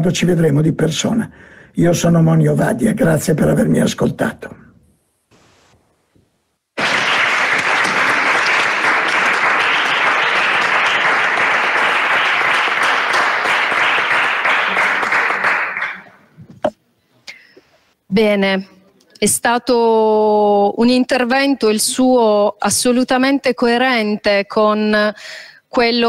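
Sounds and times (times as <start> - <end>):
crowd applause: 6.8 - 16.2.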